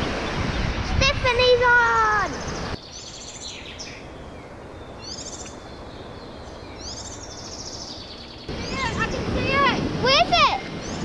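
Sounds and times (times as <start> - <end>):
bird chirping: 2.0 - 9.2, 10.6 - 11.0.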